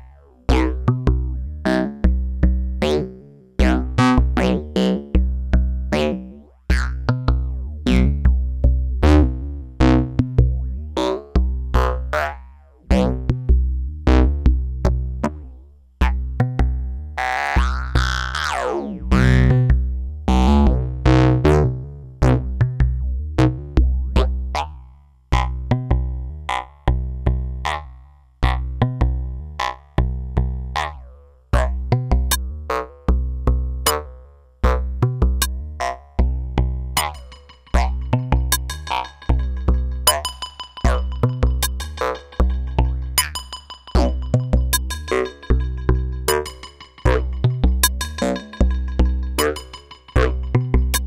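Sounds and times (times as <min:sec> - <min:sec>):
deep bass pulse: 0:00.0 - 0:02.9, 0:06.7 - 0:12.2, 0:12.9 - 0:15.4, 0:16.0 - 0:24.6, 0:34.6 - 0:51.0
clicky percussive hits: 0:37.0 - 0:51.0
synthesizer repeating notes: 0:37.0 - 0:51.0.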